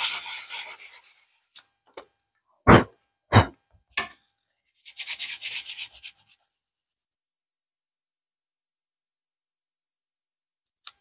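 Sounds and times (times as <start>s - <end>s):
sandpaper strokes: 4.8s - 6.4s.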